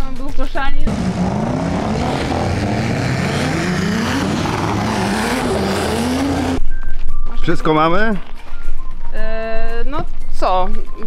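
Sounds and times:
car engine revving: 0.8 - 6.6.

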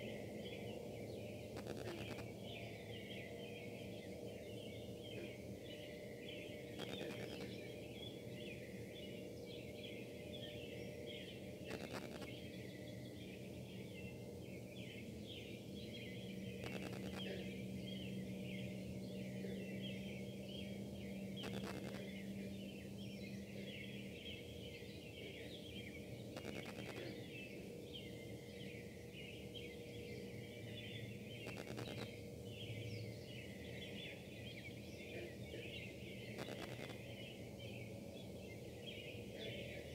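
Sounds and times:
industrial buzzing and hum: 1.6 - 2.4, 6.7 - 7.7, 11.6 - 12.5, 16.4 - 17.6, 21.4 - 22.5, 26.2 - 27.2, 31.4 - 32.2, 36.3 - 37.1
interference crackles: 1.6 - 2.4, 6.7 - 7.6, 11.7 - 12.4, 16.6 - 17.4, 21.4 - 22.1, 26.3 - 27.2, 31.4 - 32.2, 36.3 - 37.0.

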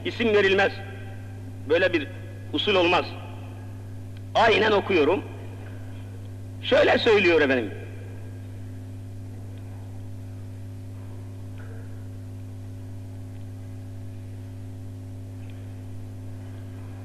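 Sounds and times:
electrical mains hum: 0.0 - 17.0.

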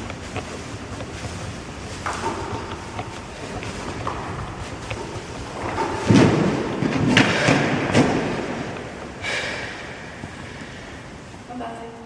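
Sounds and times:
heavy thud on gym mats: 3.9 - 10.1.

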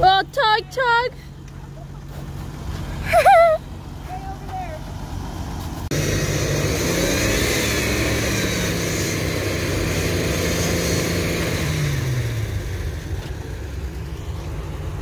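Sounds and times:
engine revving: 4.9 - 15.0.

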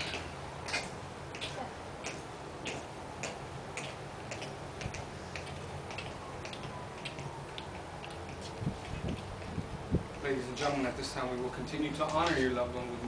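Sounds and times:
footsteps on concrete: 0.0 - 10.3
low steady hum: 0.0 - 13.0.

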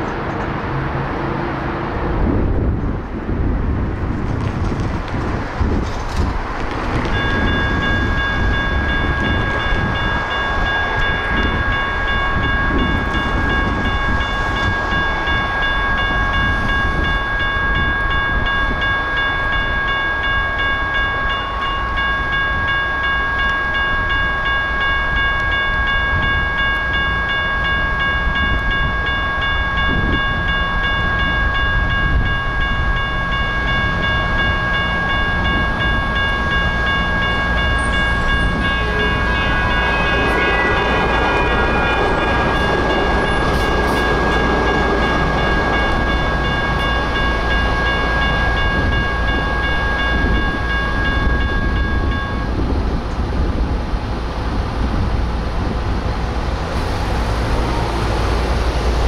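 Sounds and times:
railroad crossing warning bell: 4.8 - 59.0.

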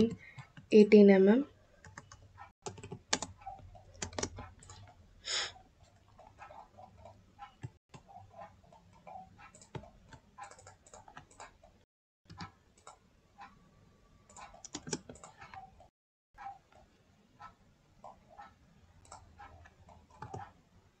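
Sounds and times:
keyboard and mouse clicking: 1.8 - 5.0, 6.0 - 11.7, 12.3 - 13.5, 14.3 - 15.9, 18.0 - 20.6.

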